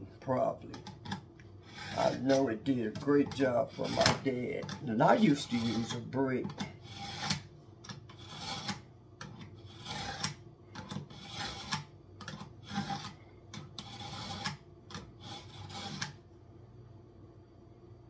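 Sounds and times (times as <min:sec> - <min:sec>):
knife scraping on masonry: 0:00.7 - 0:16.2.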